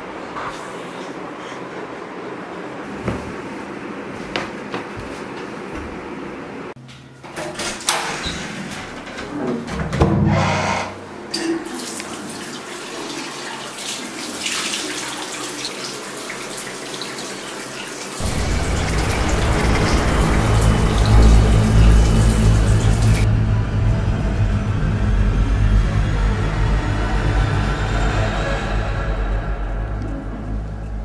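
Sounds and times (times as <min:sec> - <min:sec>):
low rumbling drone: 0:18.2 - 0:31.0.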